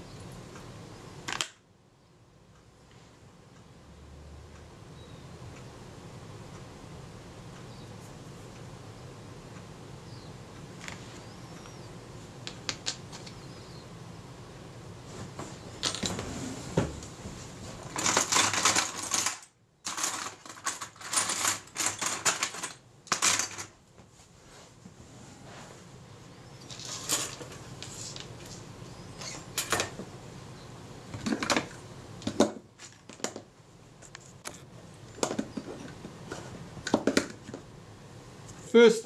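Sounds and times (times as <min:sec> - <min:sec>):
clicking and rattling of small parts: 0:12.4 - 0:13.4, 0:17.9 - 0:23.8, 0:26.6 - 0:28.6.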